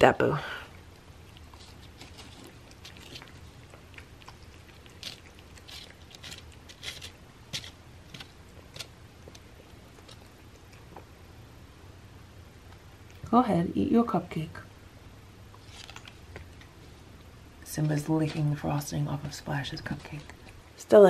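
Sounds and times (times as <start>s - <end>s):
cat chewing: 0.6s - 13.2s, 15.3s - 20.8s.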